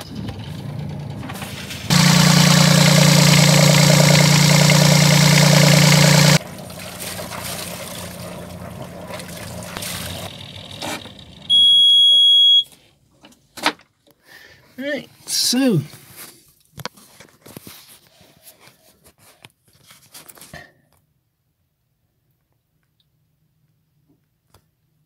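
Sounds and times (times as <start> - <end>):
diesel engine starting and running: 0.0 - 11.8
high alarm beep: 11.5 - 12.7.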